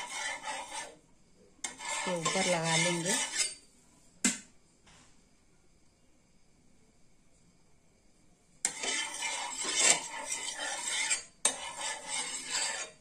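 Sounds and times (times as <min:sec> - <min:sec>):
spatula scraping a griddle: 0:00.0 - 0:01.0, 0:01.6 - 0:03.7, 0:08.6 - 0:13.0.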